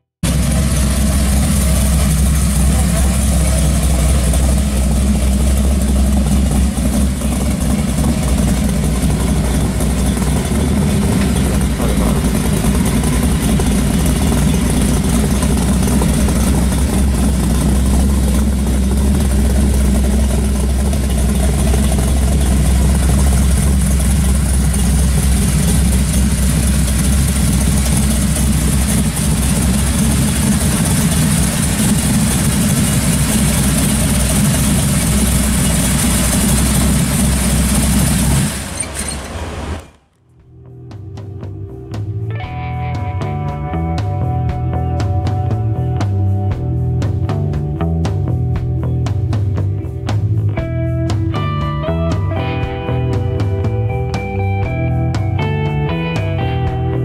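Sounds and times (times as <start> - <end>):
car engine idling: 0.1 - 57.0.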